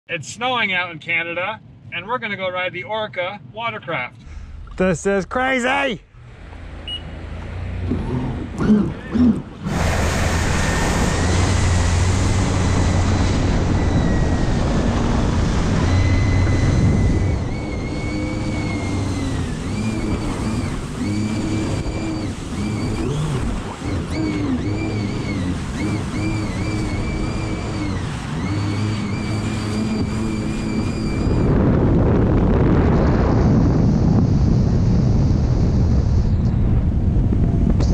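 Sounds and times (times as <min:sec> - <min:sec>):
rush of wind and spray: 0:09.4 - 0:37.9
high electric motor whine: 0:11.0 - 0:31.7.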